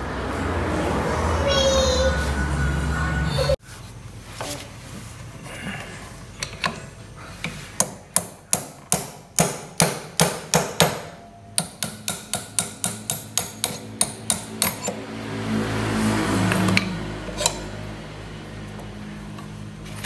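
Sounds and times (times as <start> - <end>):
hammer striking metal puller: 7.8 - 15.0.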